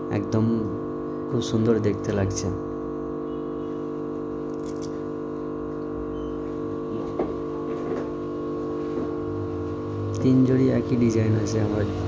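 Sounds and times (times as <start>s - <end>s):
steady multi-tone hum: 0.0s - 12.0s.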